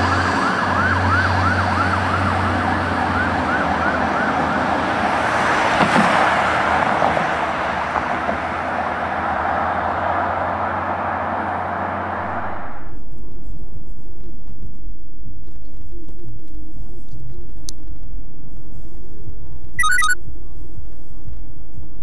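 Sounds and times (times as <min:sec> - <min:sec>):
fire engine siren yelping: 0:00.0 - 0:05.0
passing car road noise: 0:00.0 - 0:13.0.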